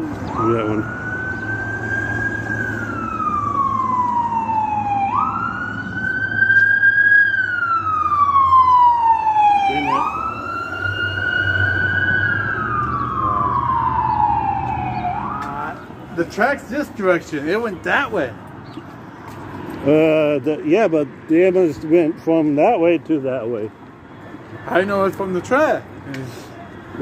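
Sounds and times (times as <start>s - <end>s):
ambulance siren wailing: 0.0s - 18.4s
low vehicle rumble: 0.0s - 24.6s.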